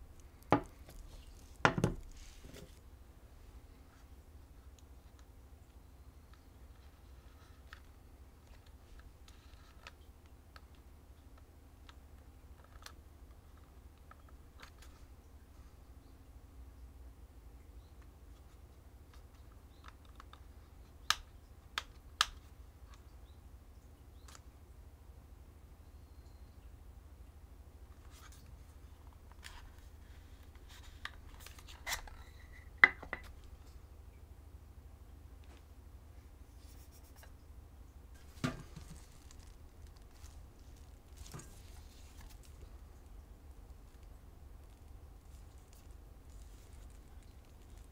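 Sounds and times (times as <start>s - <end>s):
soft rubbing: 0.0s - 4.2s, 36.3s - 37.4s, 38.2s - 47.9s
low steady hum: 0.0s - 47.9s.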